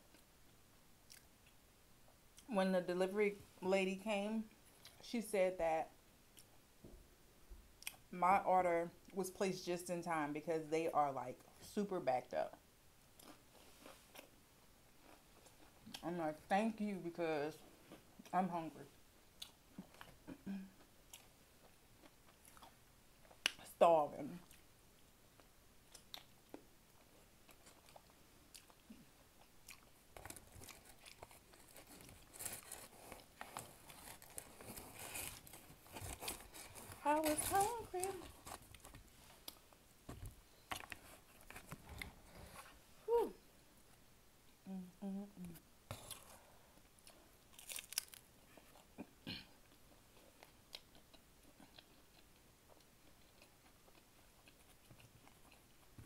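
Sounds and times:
chewing crispy pizza: 13.2s - 14.3s, 14.9s - 16.0s, 19.4s - 23.6s, 25.3s - 39.8s, 45.9s - 56.0s
chewing with wet mouth clicks: 25.9s - 26.6s.

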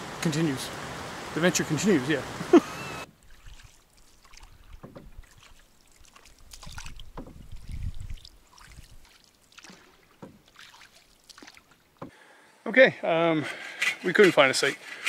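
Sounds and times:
water drips and splashes: 0.0s - 12.2s
paddles pulling through water: 1.9s - 12.2s.

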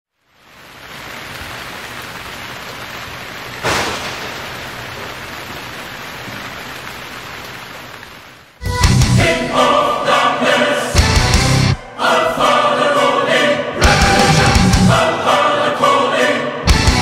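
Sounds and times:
steady rain hiss: 0.1s - 16.2s
loud crash: 3.6s - 5.3s
loud music: 8.6s - 15.7s, 16.6s - 17.0s.

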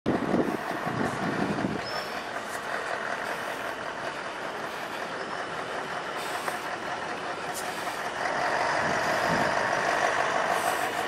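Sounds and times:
low rumble: 0.1s - 6.1s
traffic engine hum: 0.1s - 11.0s.

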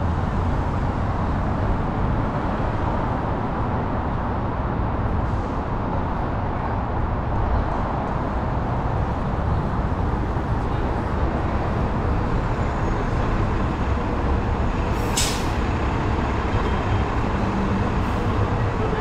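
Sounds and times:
city street traffic: 0.0s - 19.0s
air brakes hissing: 14.9s - 15.6s.

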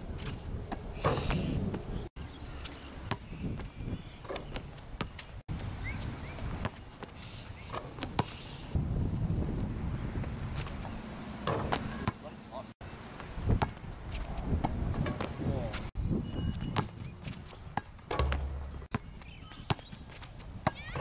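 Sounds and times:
wind rumbling on microphone: 0.0s - 7.4s, 8.0s - 11.9s, 13.2s - 21.0s
basketball bouncing on hard court: 11.4s - 12.2s, 16.6s - 21.0s.

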